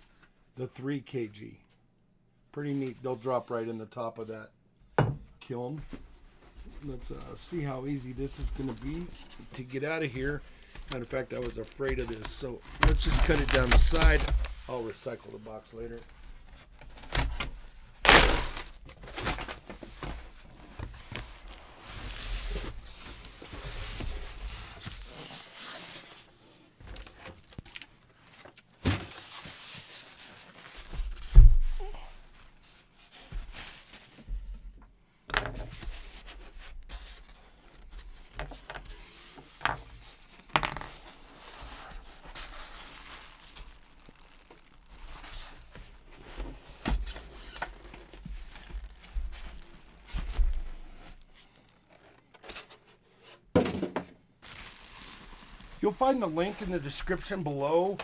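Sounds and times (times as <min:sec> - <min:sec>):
plastic wrap rustling: 0:06.3 - 0:34.2, 0:38.9 - 0:53.4, 0:54.4 - 0:58.0
styrofoam rubbing and scraping: 0:11.0 - 0:14.9, 0:38.8 - 0:52.2
cardboard being cut and torn: 0:11.6 - 0:14.3, 0:17.0 - 0:19.5.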